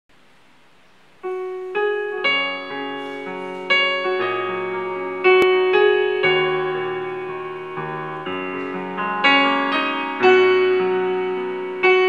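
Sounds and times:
faint hiss: 0.1 - 5.5
digital piano notes and chords: 1.0 - 12.0.

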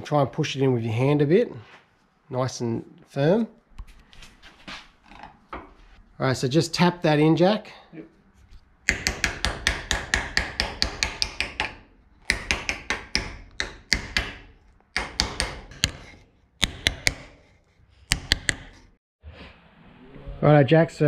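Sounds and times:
hammer tapping nylon block: 8.8 - 17.5, 18.1 - 18.9.

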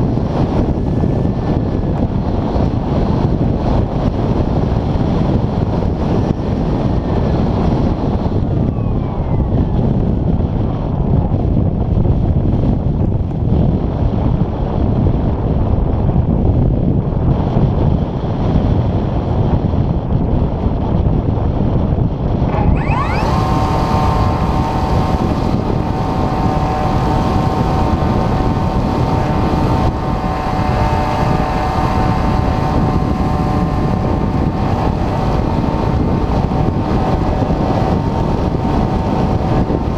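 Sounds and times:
wind rushing: 0.0 - 39.9
electric motor whine: 22.5 - 39.9.

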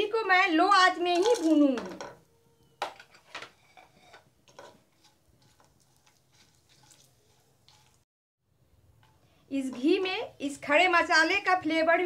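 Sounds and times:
spices frying in oil: 3.5 - 8.0, 8.8 - 11.9.

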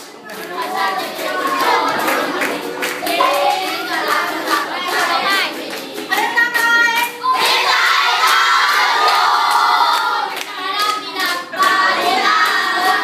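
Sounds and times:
hand claps: 0.0 - 7.2, 10.0 - 11.8
group singing: 0.0 - 13.0
ukulele strumming: 1.0 - 6.6.

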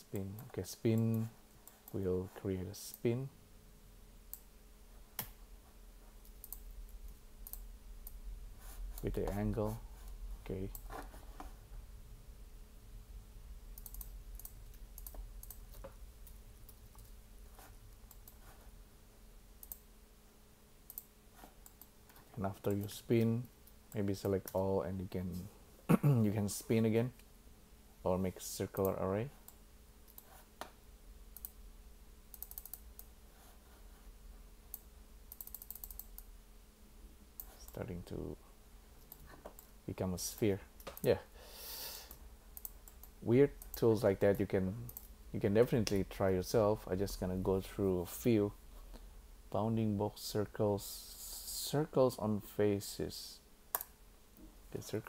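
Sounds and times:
faint low hum: 0.0 - 55.0
computer mouse clicks: 6.2 - 8.2, 13.8 - 17.2, 17.9 - 18.5, 19.6 - 19.8, 20.9 - 22.2, 28.8 - 30.7, 31.4 - 31.6, 32.3 - 33.1, 34.7 - 36.3, 42.1 - 45.1
keyboard and mouse clicks: 13.8 - 17.2, 32.3 - 33.1, 34.7 - 36.3.

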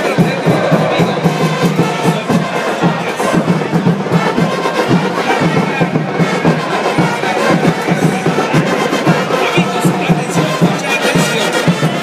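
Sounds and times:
brass playing: 0.0 - 5.4
crowd voices: 0.0 - 12.0
drums beating: 0.0 - 12.0.

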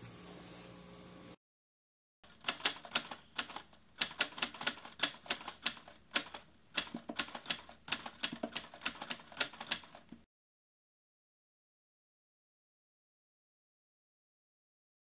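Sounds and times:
rapid key-like clicking: 2.3 - 10.2.

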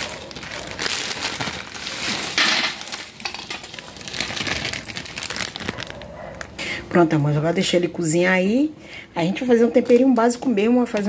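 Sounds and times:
dry spaghetti crackling: 0.0 - 7.4.

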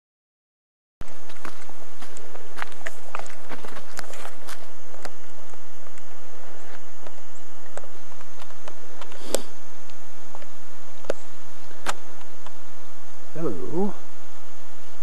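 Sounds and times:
footsteps on leaf litter: 1.1 - 5.0.

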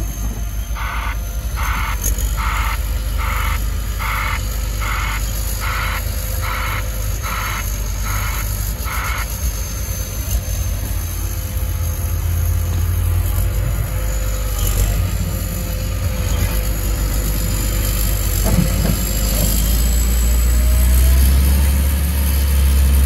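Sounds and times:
diesel engine running: 0.0 - 23.0
reversing alarm beeps: 0.2 - 11.0.

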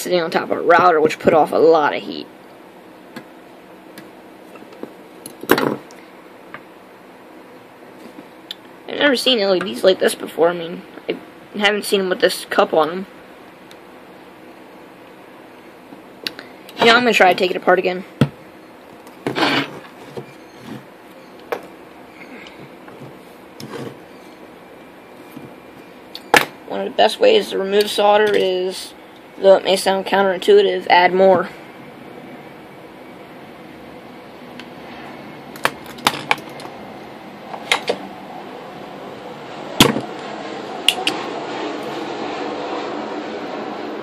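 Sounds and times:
faint steady hum: 0.0 - 44.0
rustling scrape on workbench: 23.0 - 24.3.

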